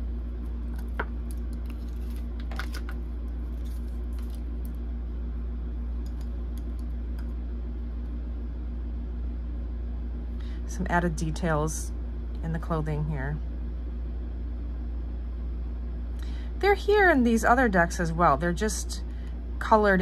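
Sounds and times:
low room hum: 0.0s - 20.0s
cards clicking and rustling: 0.8s - 4.4s.

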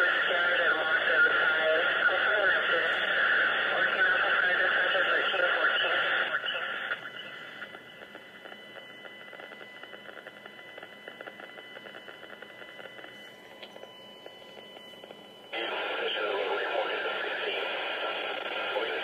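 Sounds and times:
faint radio hiss: 0.0s - 19.0s
loud rushing radio signal: 15.5s - 19.0s.

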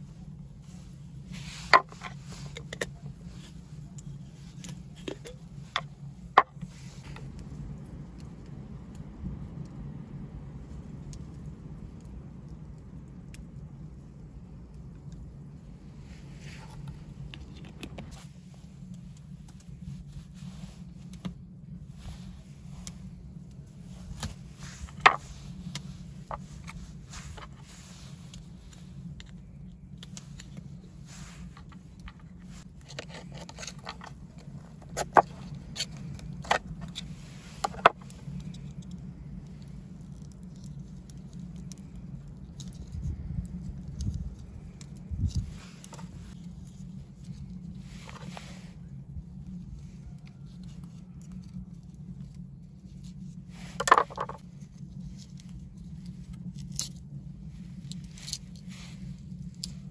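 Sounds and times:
steady low hum: 0.0s - 59.9s
twine rustling: 15.9s - 59.9s.

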